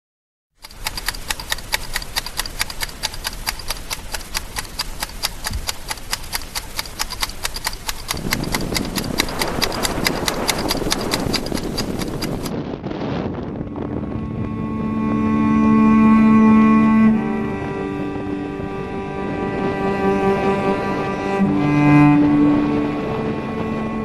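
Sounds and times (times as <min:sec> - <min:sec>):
clip-clop beat with bright ring: 0:00.7 - 0:12.5
rushing noise: 0:13.7 - 0:24.0.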